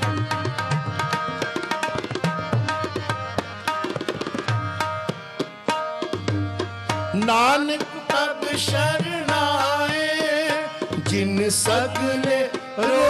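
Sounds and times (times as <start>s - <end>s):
harmonium chords: 0.0s - 13.0s
tabla playing: 0.0s - 13.0s.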